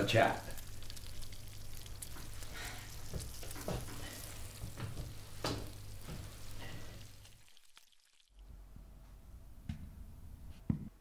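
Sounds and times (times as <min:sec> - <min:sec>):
food sizzling in a frying pan: 0:00.0 - 0:08.4.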